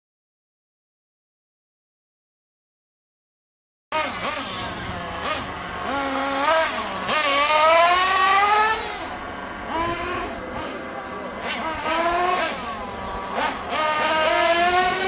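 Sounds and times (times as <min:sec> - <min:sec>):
small nitro engines whining: 0:03.9 - 0:15.0.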